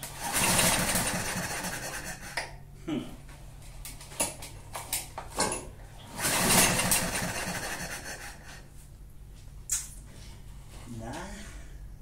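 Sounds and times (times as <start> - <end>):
engine cranking without catching: 0.0 - 2.4, 6.1 - 8.4
lawn mower recoil starter pulled: 6.2 - 7.3.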